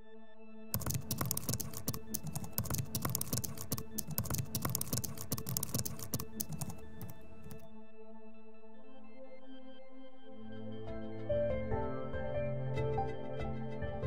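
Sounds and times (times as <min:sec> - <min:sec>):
keyboard typing clicks: 0:00.8 - 0:07.7.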